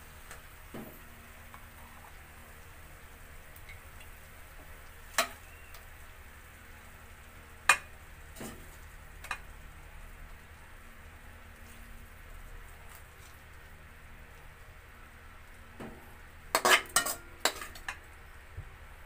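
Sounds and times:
faint sauce sizzle: 0.0s - 19.0s
spoon clinking on metal pan: 16.6s - 18.0s.

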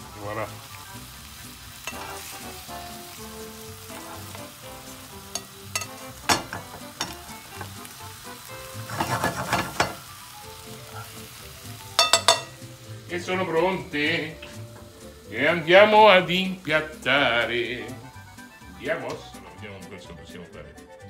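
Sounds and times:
fish sizzling in a frying pan: 0.0s - 19.7s
metal tongs clicking on a pan: 1.8s - 2.3s, 5.3s - 7.8s, 8.9s - 10.0s, 11.9s - 12.6s
pan clattering: 1.8s - 2.4s, 5.3s - 7.8s, 8.7s - 10.1s, 11.9s - 12.6s.

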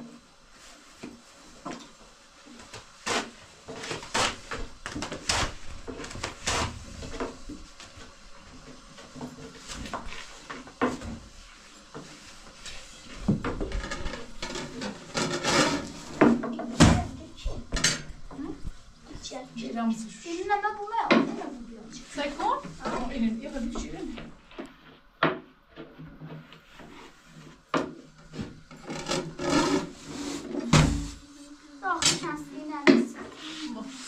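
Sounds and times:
objects knocking and clattering: 13.2s - 18.5s.

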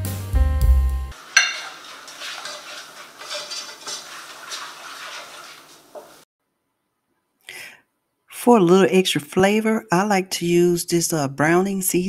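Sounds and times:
background music: 0.0s - 1.2s
utensil stirring and scraping pan: 1.2s - 6.3s
utensil clinking against frying pan: 1.3s - 6.2s.

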